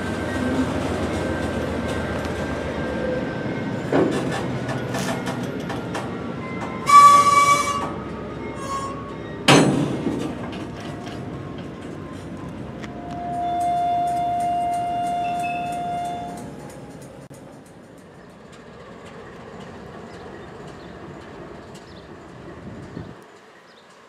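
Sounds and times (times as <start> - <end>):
high-pitched wheel squeal: 6.4 - 9.5, 12.9 - 16.5
loud metallic clank: 9.5 - 10.6.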